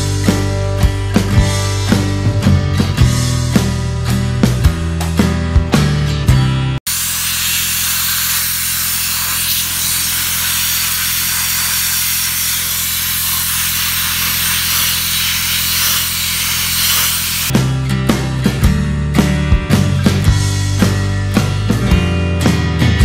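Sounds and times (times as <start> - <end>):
rock music: 0.0 - 7.1, 16.8 - 23.0
sandblast nozzle hissing: 6.9 - 17.5.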